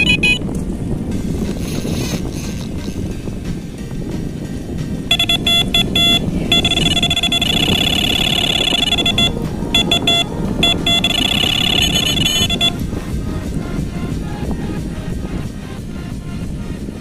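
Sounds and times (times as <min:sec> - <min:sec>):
bite alarm beeping: 0:00.0 - 0:00.4, 0:05.1 - 0:12.8.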